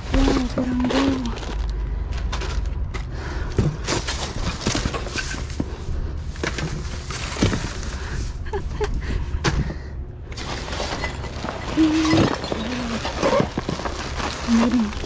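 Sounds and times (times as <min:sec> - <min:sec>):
plastic bags crinkling: 0:00.0 - 0:02.9, 0:10.4 - 0:15.0.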